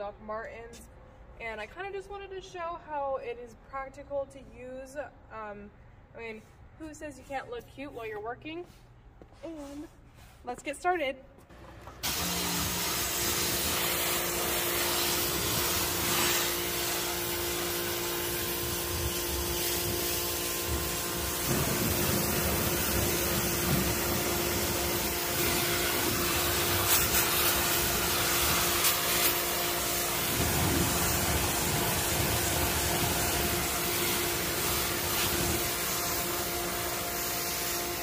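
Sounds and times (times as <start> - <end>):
pressure washer motor hum: 11.5 - 38.0
water jet spraying on car: 12.0 - 38.0.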